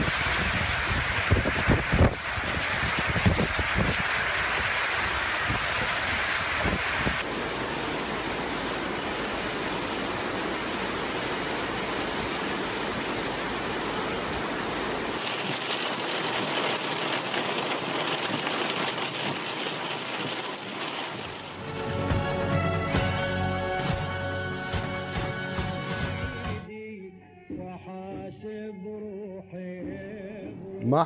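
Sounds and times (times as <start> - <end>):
wind buffeting microphone: 0.0 - 7.2
rain beating on car windscreen: 0.0 - 7.3, 8.7 - 21.9
heavy rain: 0.0 - 26.6.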